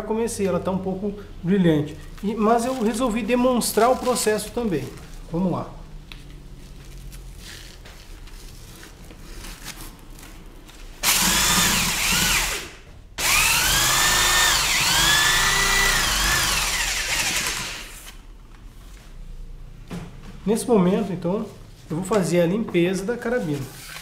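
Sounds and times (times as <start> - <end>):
power drill hissing whine: 11.0 - 18.1.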